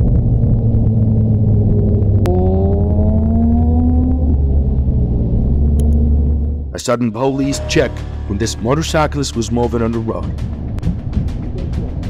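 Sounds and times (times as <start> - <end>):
motorcycle engine accelerating: 0.0 - 6.8
wind drone: 0.0 - 6.8, 9.0 - 12.0.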